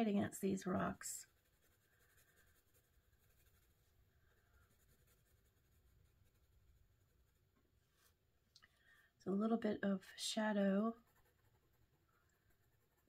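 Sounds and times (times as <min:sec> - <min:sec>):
pencil scratching on paper: 0:00.7 - 0:08.1, 0:10.9 - 0:13.0.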